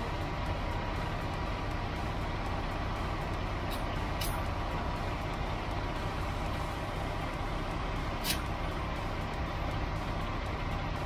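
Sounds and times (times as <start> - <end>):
low engine rumble: 0.0 - 11.0
compressed air hissing: 8.2 - 8.5.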